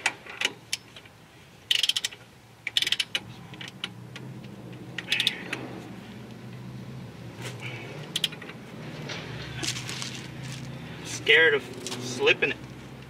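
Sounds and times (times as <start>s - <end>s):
torque wrench ratchet clicking: 1.7s - 3.2s, 5.0s - 5.4s.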